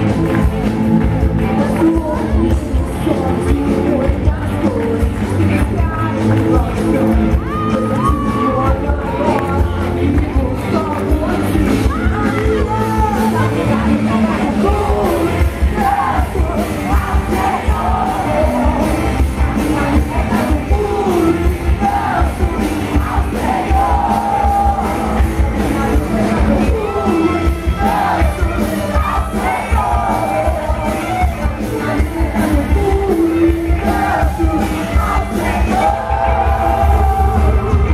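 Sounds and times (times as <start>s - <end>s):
person singing over amplified music: 0.0s - 37.9s
crowd yelling: 7.0s - 9.9s, 11.6s - 37.9s.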